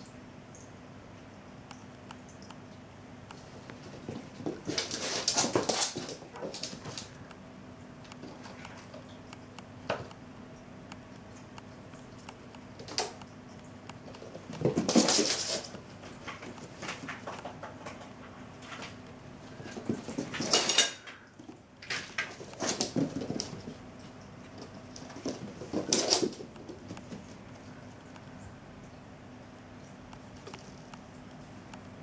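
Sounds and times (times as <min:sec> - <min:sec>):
cat paws skittering on wooden floor: 0:03.3 - 0:10.2, 0:11.0 - 0:28.4.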